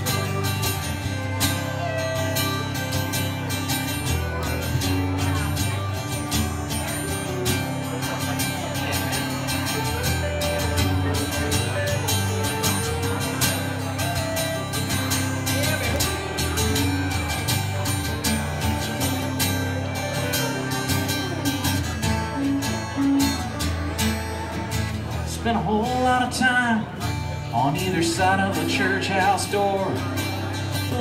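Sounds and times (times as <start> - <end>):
acoustic guitar strumming: 0.0 - 31.0
pedal steel guitar melody: 0.0 - 31.0
man singing: 25.1 - 31.0.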